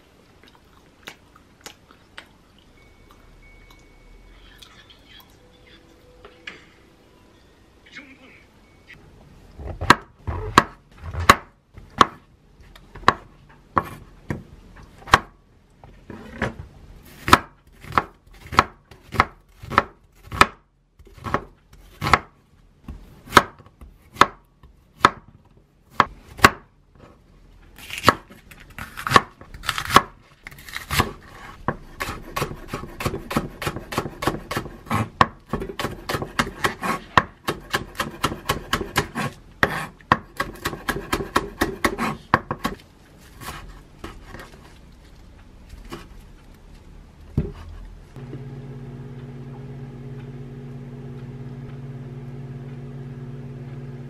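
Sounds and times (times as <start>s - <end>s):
knife chopping on wooden board: 9.8s - 12.2s, 13.0s - 14.4s, 17.2s - 22.3s, 30.9s - 42.8s.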